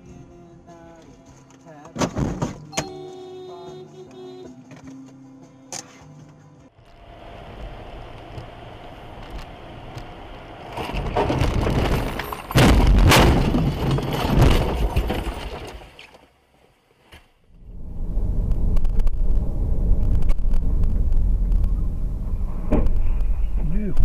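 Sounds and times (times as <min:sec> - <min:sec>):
car driving noise: 0:06.7 - 0:16.0, 0:17.5 - 0:24.0
crashing and breaking: 0:10.7 - 0:16.1
loud crash impacts: 0:11.0 - 0:15.8.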